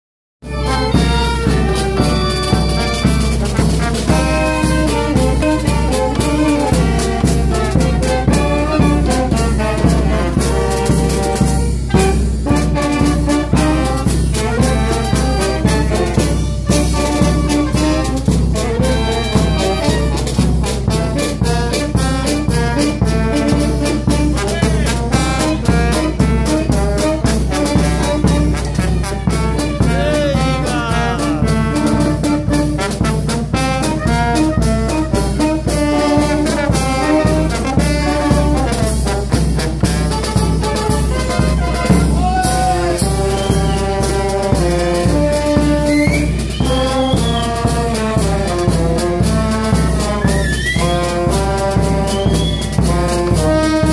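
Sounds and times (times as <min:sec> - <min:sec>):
bass drum and snare drums: 0:00.4 - 0:53.9
brass band playing: 0:00.4 - 0:53.9.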